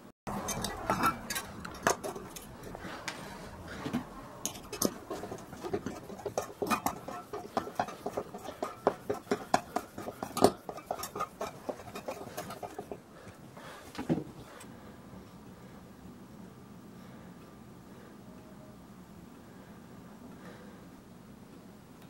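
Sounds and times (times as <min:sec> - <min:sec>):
metal clicks and clinks: 0:00.3 - 0:02.8.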